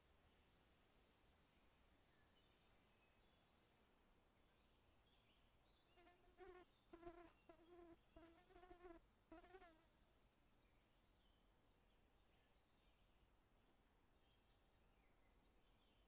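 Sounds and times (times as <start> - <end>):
faint high-pitched whine: 0.0 - 16.0
insect wing buzz: 5.9 - 9.9.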